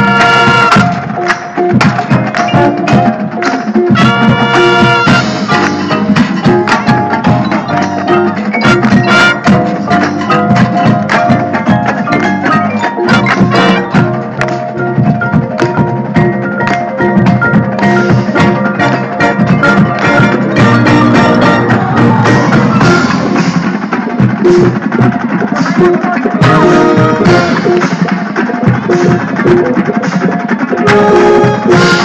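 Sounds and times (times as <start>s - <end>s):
drums: 0.0s - 32.0s
marimba and xylophone: 0.0s - 32.0s.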